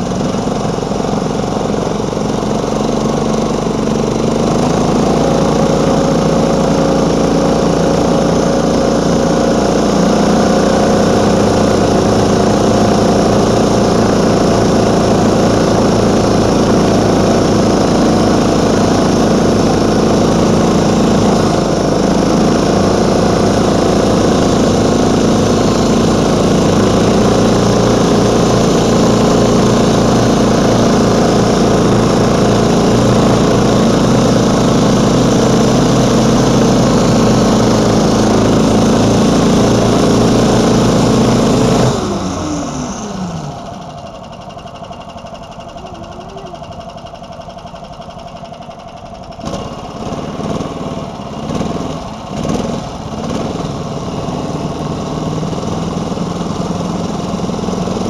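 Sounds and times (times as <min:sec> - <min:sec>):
snowmobile engine running: 0:00.0 - 0:58.0.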